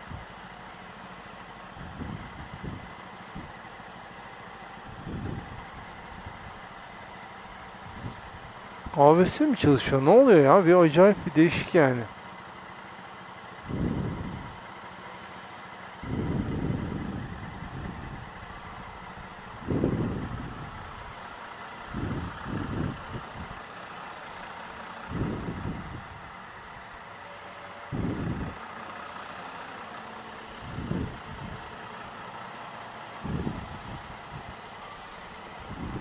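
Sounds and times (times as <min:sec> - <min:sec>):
motorcycle idling: 0:00.0 - 0:36.0
slow traffic hum: 0:00.0 - 0:36.0.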